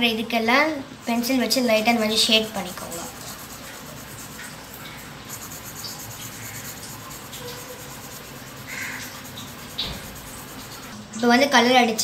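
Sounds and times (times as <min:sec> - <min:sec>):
pencil scratching on paper: 0:01.9 - 0:10.9.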